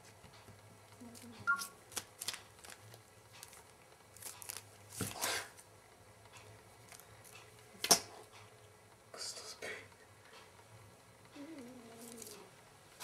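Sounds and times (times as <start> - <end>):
foil wrapper crinkling: 1.9 - 5.2.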